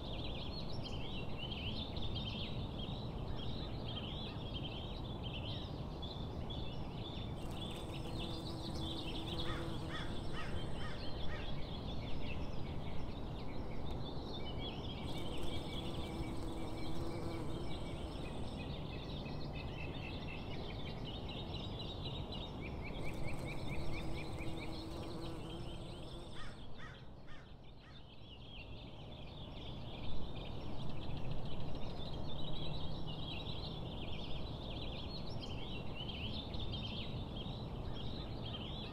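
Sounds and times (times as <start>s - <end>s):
low outdoor background noise: 0.0s - 38.9s
birds chirping and singing: 7.4s - 11.6s.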